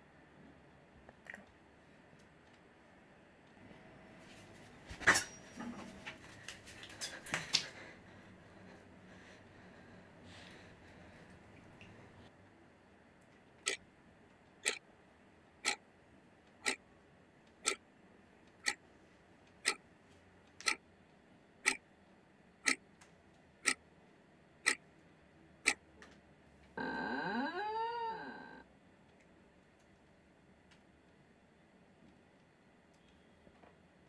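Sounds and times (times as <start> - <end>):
clock ticking: 18.6 - 18.8, 21.6 - 21.8.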